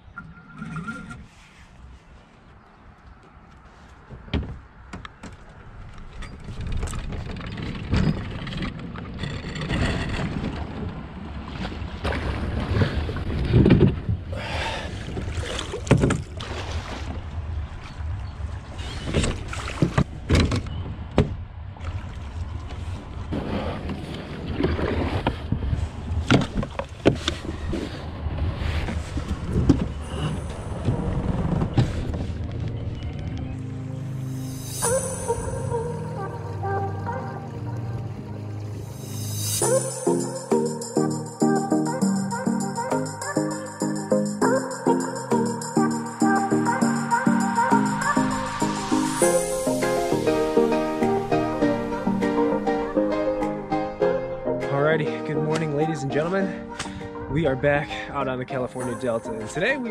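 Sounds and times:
steady low rumble: 30.0s - 39.8s.

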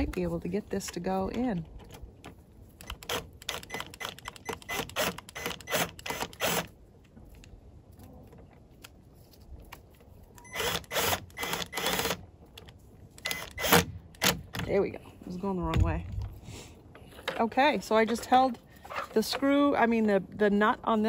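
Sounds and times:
cordless drill clicking: 2.8s - 6.7s.

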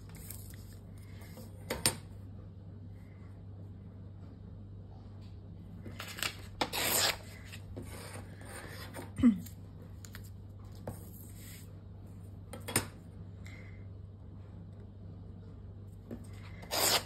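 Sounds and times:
paper ripping: 5.9s - 7.6s, 16.6s - 17.0s
paper shuffling: 5.9s - 8.2s.

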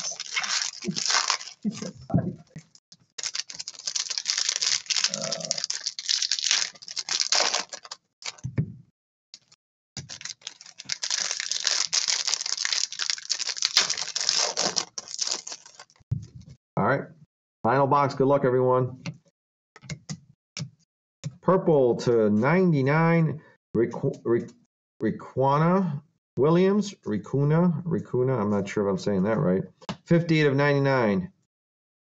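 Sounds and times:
foil wrappers crinkling and tearing: 0.0s - 2.0s, 3.2s - 8.4s, 9.4s - 16.0s.

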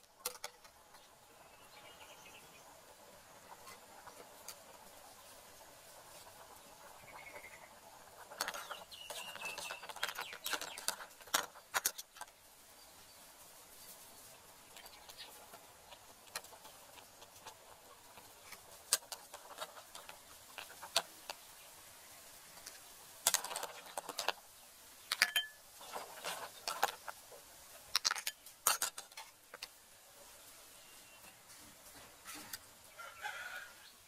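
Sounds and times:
metal ladle clinking against pot: 25.1s - 25.6s.

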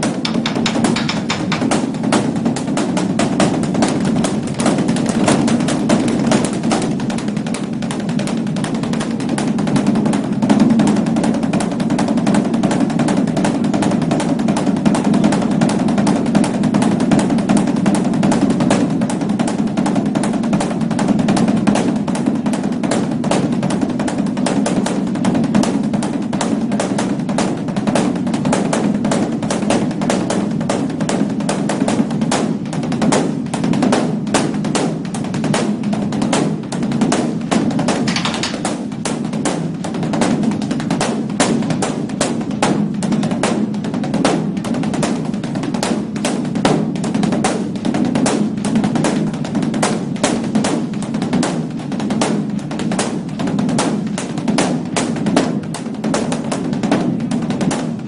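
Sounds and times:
deep drum boom: 0.0s - 26.5s
large drum beaten fast: 0.0s - 58.0s.

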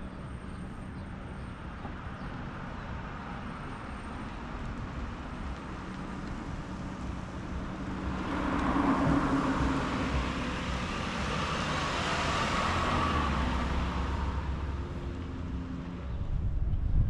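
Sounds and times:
street noise: 0.0s - 17.0s
car driving past: 7.7s - 16.2s.

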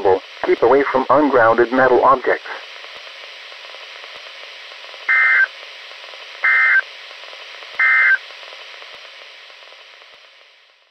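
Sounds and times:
radio hiss: 0.0s - 10.9s
digital data tone bursts: 5.1s - 5.5s, 6.4s - 6.8s, 7.8s - 8.2s.

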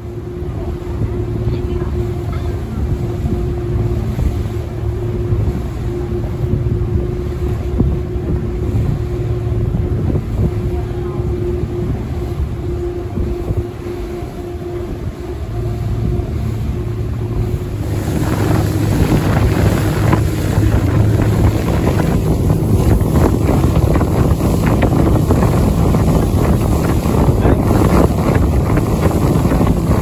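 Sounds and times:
boat engine humming: 0.0s - 30.0s
wind buffeting microphone: 0.0s - 30.0s
water spray rushing: 13.6s - 30.0s.

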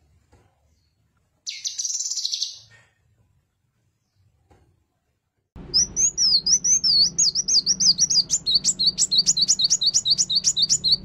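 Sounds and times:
bird singing: 0.8s - 2.7s, 5.6s - 11.0s.

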